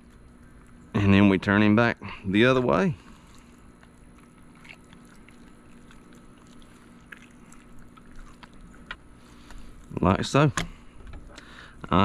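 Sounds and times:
wet squishing of raw fish: 2.6 - 11.6.

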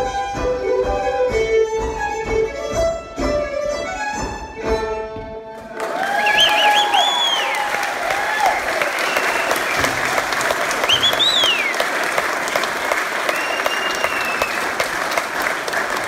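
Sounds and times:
audience clapping and cheering: 5.5 - 16.0.

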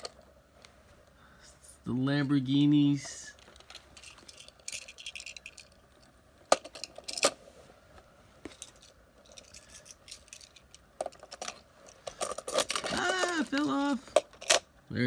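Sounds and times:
toy cars clicking on hard base: 8.6 - 14.7.

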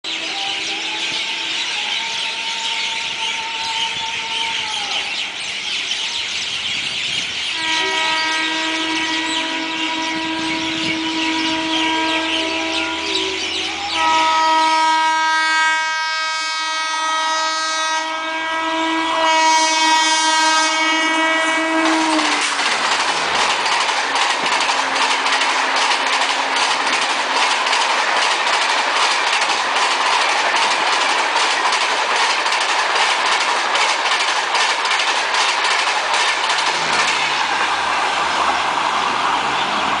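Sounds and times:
locomotive horn blast: 7.6 - 22.6, 24.6 - 26.9
train wheels clickety-clack: 21.6 - 37.8.

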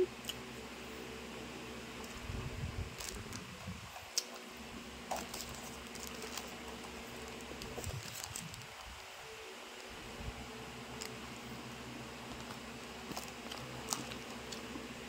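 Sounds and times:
foil paper wrapper crinkling: 2.9 - 4.4, 5.1 - 9.1, 12.2 - 14.7.

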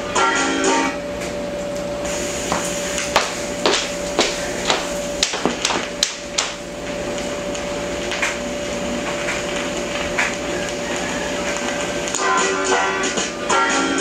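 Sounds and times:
faint hum: 0.0 - 14.0
room noise hiss: 0.0 - 14.0
sharp footsteps: 2.4 - 8.4.

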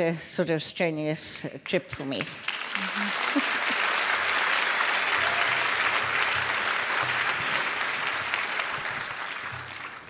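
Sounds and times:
audience applauding: 2.2 - 10.0.

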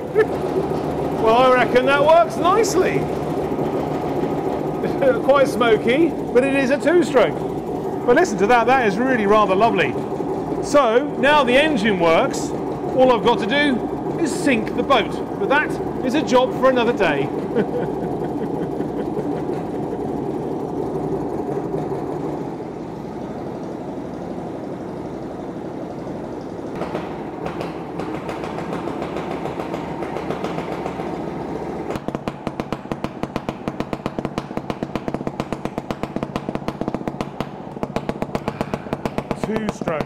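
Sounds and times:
boat engine running: 0.0 - 40.0
rapid regular engine pulsing: 0.0 - 40.0.

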